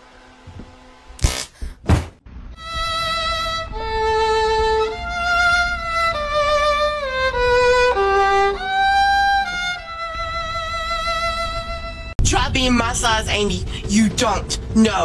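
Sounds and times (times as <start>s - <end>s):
solo violin slow melody: 2.5s - 12.2s.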